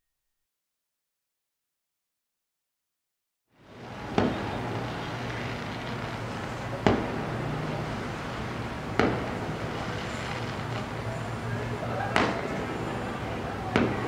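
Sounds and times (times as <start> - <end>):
low hum of city noise: 3.5 - 14.0
fireworks bangs: 3.8 - 14.0.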